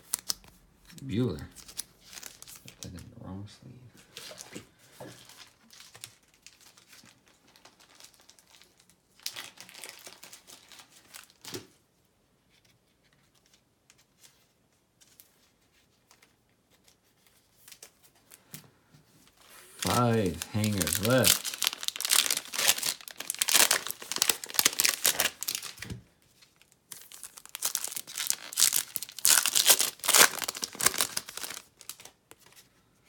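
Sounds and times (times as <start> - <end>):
plastic sleeves crinkling: 0.0 - 3.0, 4.1 - 11.6, 19.3 - 32.6.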